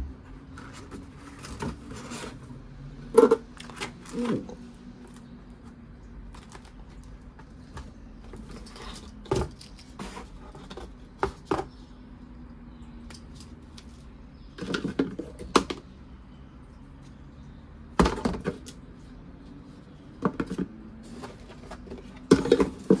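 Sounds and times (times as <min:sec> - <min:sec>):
plastic parts clicking and knocking: 0:14.5 - 0:15.9, 0:21.5 - 0:23.0.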